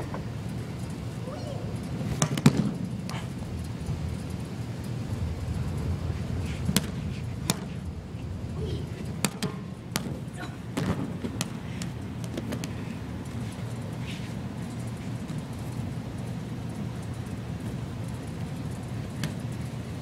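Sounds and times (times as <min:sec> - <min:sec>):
steady low rumble: 0:00.0 - 0:20.0
exercise ball bouncing: 0:02.1 - 0:03.6, 0:06.6 - 0:07.8, 0:09.0 - 0:13.9, 0:19.1 - 0:19.6.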